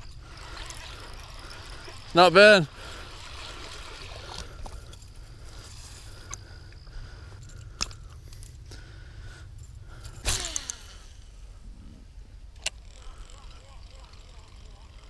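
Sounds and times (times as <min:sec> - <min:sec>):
steady low rumble: 0:04.4 - 0:12.6.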